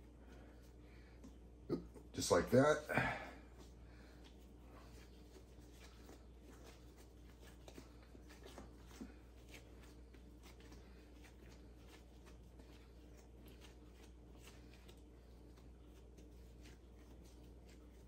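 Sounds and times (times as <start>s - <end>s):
hands rubbing and patting dough: 0.0s - 18.0s.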